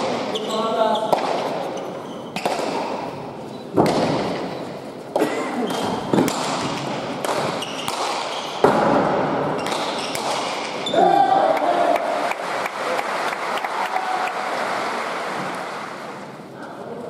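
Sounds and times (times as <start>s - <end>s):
ball smacking against walls: 3.7s - 4.4s, 5.1s - 10.6s.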